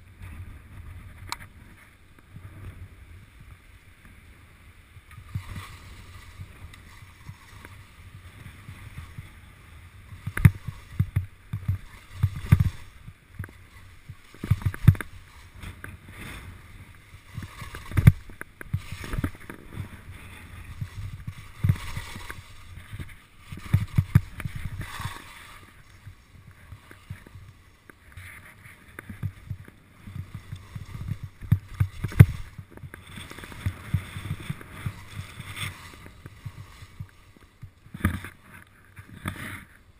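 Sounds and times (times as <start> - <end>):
skis scraping over bumpy snow: 0.0 - 39.9
low thumps of skis on bumps: 5.1 - 39.7.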